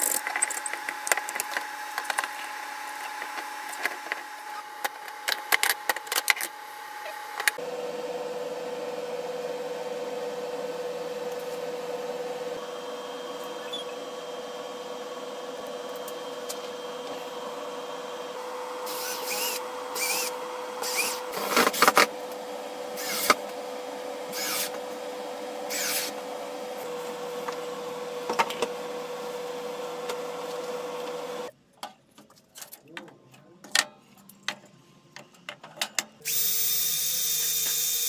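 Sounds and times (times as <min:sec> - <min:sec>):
power screwdriver driving screws: 0:18.9 - 0:22.1, 0:24.4 - 0:24.8.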